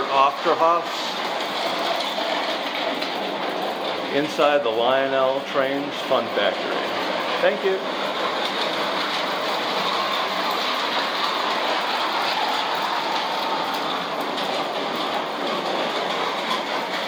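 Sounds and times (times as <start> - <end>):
toy train running on track: 0.0 - 17.0.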